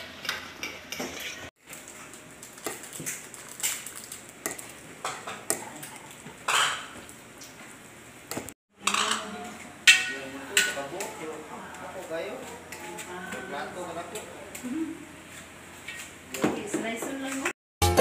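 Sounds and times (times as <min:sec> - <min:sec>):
cutlery clinking on plastic bowls: 0:08.8 - 0:11.2.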